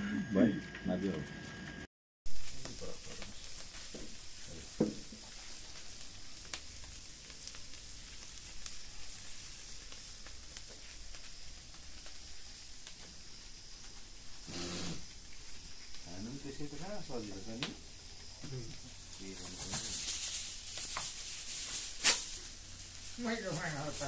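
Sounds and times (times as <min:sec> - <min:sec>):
fire hissing and crackling: 0:00.3 - 0:24.0
logs knocking in fire: 0:02.4 - 0:13.2, 0:17.1 - 0:19.9.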